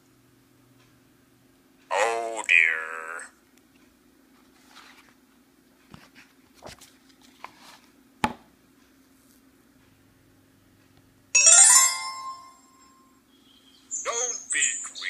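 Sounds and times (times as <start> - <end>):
faint steady hum: 0.0 - 15.0
page rustling: 4.4 - 5.2, 5.9 - 7.9.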